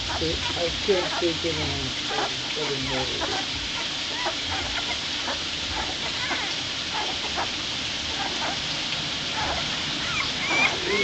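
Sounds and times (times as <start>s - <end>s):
steady hiss: 0.0s - 11.0s
puppies squeaking: 9.4s - 11.0s.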